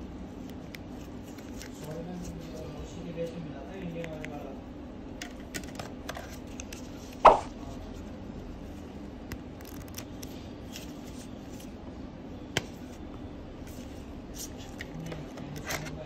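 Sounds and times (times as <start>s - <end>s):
steady low hum: 0.0s - 16.0s
sharp knock: 7.2s - 7.5s.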